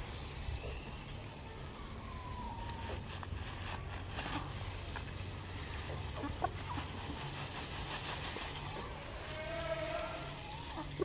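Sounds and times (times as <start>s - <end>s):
chicken calls: 8.5s - 11.0s.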